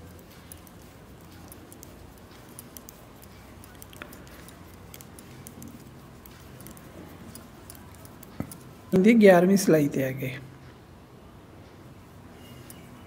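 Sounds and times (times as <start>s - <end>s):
metal knitting needles clicking: 0.0s - 9.0s.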